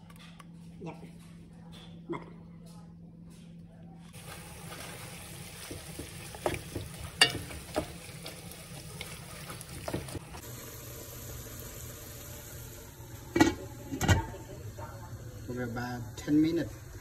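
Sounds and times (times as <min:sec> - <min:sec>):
wooden spoon knocking pot: 0:05.6 - 0:08.0.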